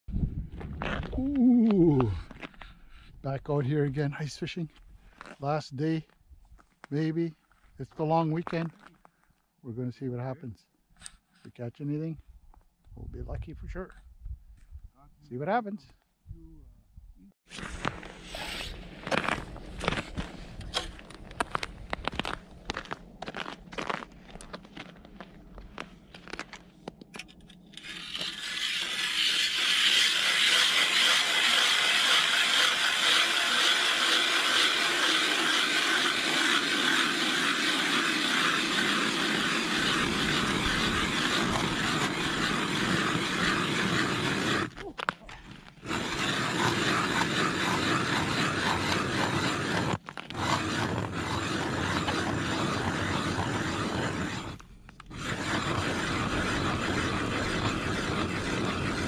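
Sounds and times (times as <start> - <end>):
ice auger grinding through ice: 17.5 - 25.0, 27.2 - 59.0.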